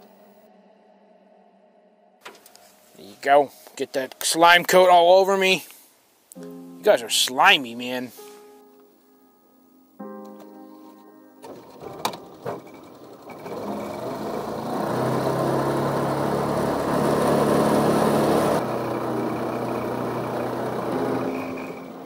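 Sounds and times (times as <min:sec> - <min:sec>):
boat motor hum: 0:11.5 - 0:22.0.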